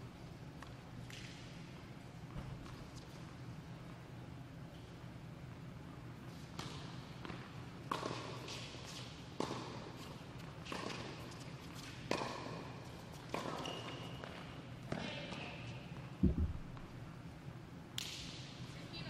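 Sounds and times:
tennis balls bouncing on court: 0:06.5 - 0:15.0
tennis balls struck by racquets: 0:06.6 - 0:08.8, 0:09.4 - 0:10.0, 0:12.0 - 0:13.7.

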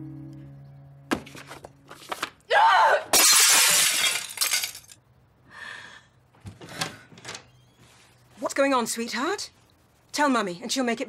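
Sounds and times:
object smashing: 0:03.1 - 0:05.0.

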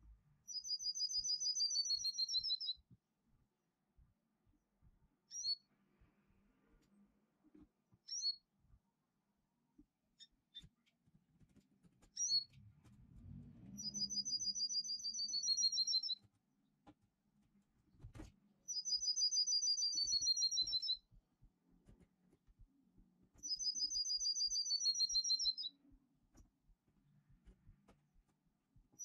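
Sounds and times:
recorded finch song trill: 0:00.5 - 0:02.8, 0:13.8 - 0:16.2, 0:18.7 - 0:21.0, 0:23.4 - 0:25.8.

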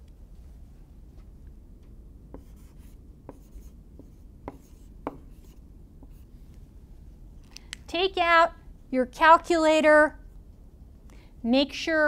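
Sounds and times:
marker writing on whiteboard: 0:02.3 - 0:06.3.

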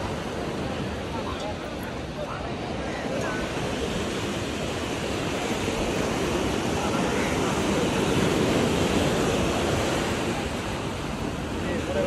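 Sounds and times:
surf breaking on a beach: 0:00.0 - 0:12.0.

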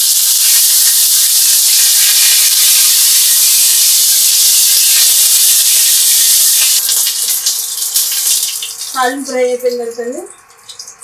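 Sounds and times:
leaves sizzling in hot oil: 0:00.0 - 0:11.0.

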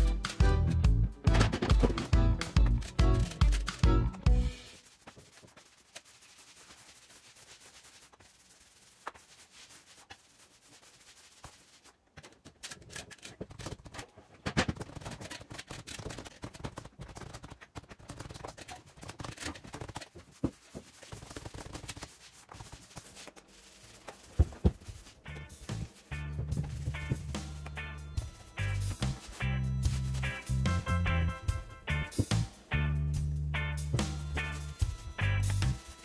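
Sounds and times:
paint roller rubbing on wall: 0:04.6 - 0:12.0, 0:18.5 - 0:30.6.

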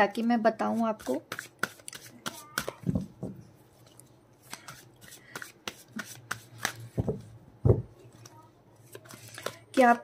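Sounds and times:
cards being shuffled: 0:01.0 - 0:03.0, 0:04.4 - 0:07.2, 0:08.2 - 0:10.0.

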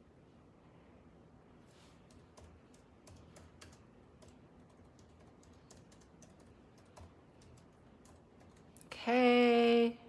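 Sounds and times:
fingers tapping touchscreen: 0:02.0 - 0:08.8.

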